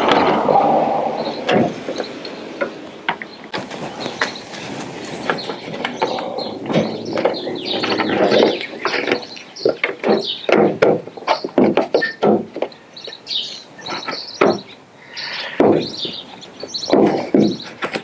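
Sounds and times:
plastic scraping: 0:03.5 - 0:12.8.

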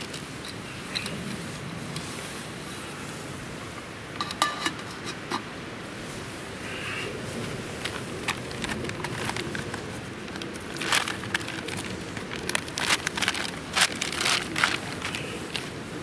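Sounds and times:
packet crinkling: 0:07.8 - 0:15.9.

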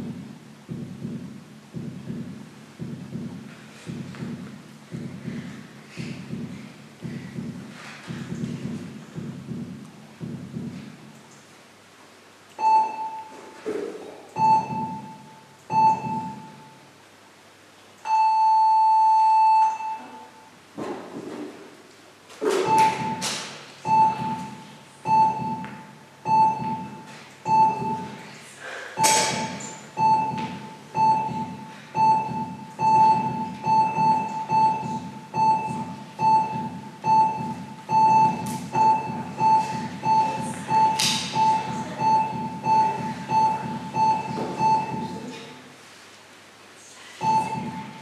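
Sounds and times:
heart monitor beeping: 0:00.0 - 0:10.9, 0:12.6 - 0:13.6, 0:14.4 - 0:16.8, 0:18.1 - 0:20.5, 0:22.5 - 0:28.2, 0:29.0 - 0:45.3, 0:47.2 - 0:48.0
heartbeat thump: 0:00.0 - 0:11.1, 0:14.4 - 0:16.6, 0:22.4 - 0:28.2, 0:29.0 - 0:45.3, 0:47.2 - 0:48.0.

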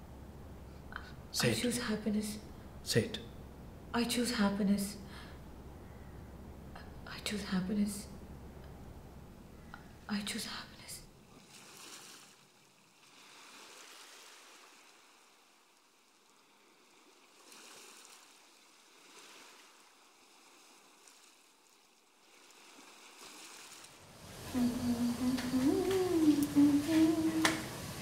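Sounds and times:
soft rushing water: 0:09.8 - 0:28.0
woman humming: 0:24.4 - 0:28.0.

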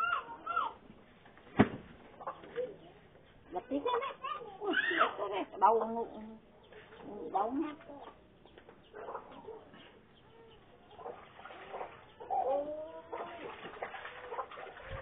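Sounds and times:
chickens clucking: 0:02.0 - 0:15.0.

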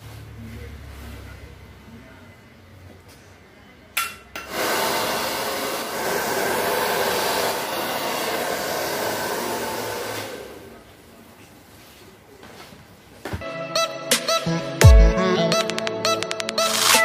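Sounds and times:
appliance rushing noise: 0:04.4 - 0:10.8.

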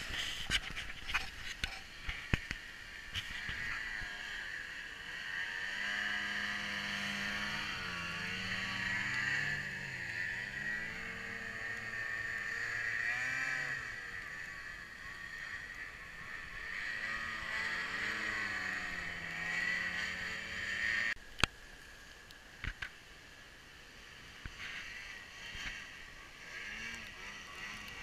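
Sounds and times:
snowmobile engines revving: 0:00.0 - 0:21.2, 0:24.1 - 0:28.0.

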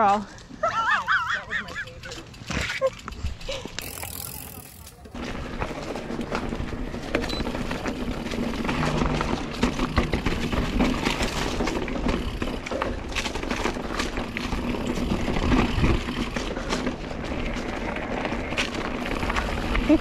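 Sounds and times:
bike rattling over bumps: 0:01.1 - 0:20.0.

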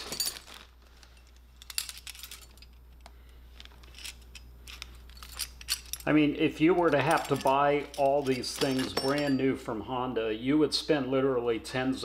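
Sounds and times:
plastic bag crinkling: 0:00.0 - 0:01.3
metal hardware clinking: 0:00.0 - 0:09.5.

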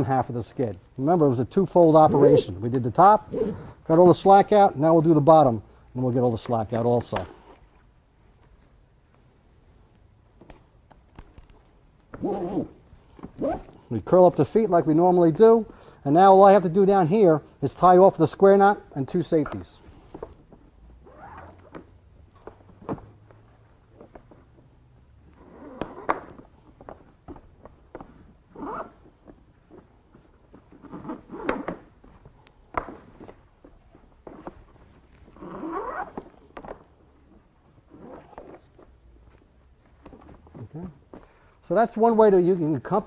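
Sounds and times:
rope rubbing and sliding: 0:30.5 - 0:32.2, 0:33.8 - 0:36.4, 0:37.2 - 0:39.5.

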